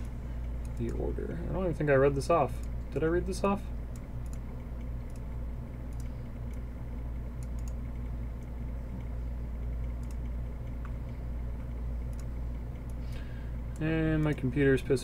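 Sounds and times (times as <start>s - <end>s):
low background hum: 0.0s - 15.0s
faint clicks: 5.9s - 6.6s, 7.4s - 9.1s, 9.8s - 14.5s.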